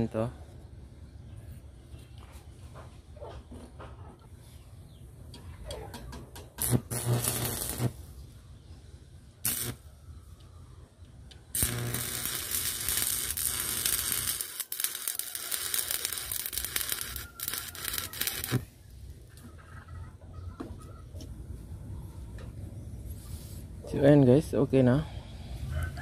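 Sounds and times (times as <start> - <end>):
arc welder crackling: 6.5 - 8.1, 9.4 - 9.9, 11.5 - 18.8.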